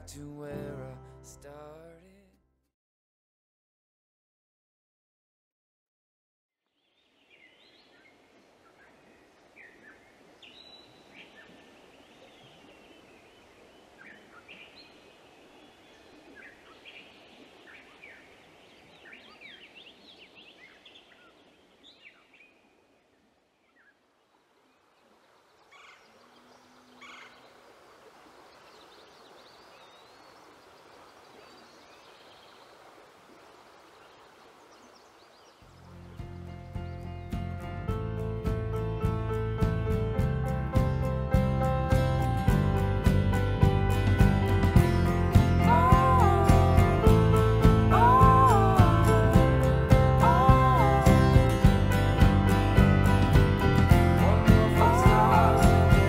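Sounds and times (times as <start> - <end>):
small birds chirping: 6.7 - 24.0, 24.7 - 33.0, 33.8 - 37.3
flowing river water: 7.0 - 37.4, 41.8 - 56.0.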